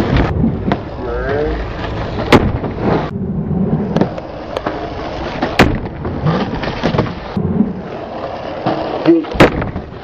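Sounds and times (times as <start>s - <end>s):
skateboard clack: 0.0s - 3.1s, 3.8s - 10.0s
skateboard wheels rolling on concrete: 0.0s - 10.0s.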